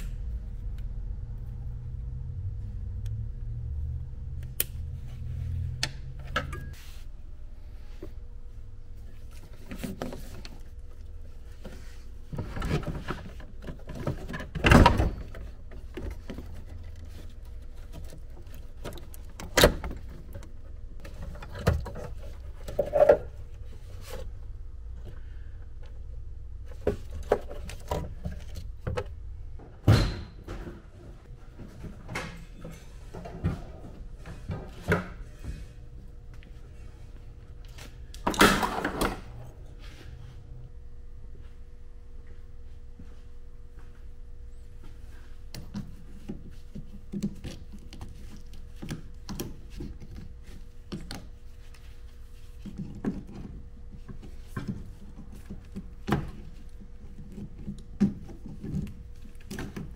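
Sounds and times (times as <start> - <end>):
low background hum: 0.0 - 59.9
tools and parts clunking: 6.1 - 6.8.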